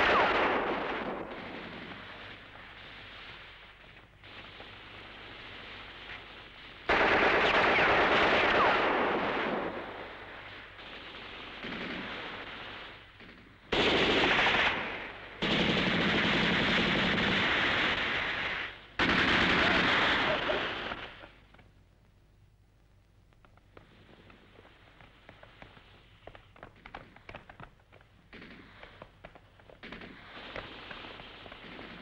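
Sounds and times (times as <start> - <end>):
automatic gunfire bursts: 6.9 - 21.2.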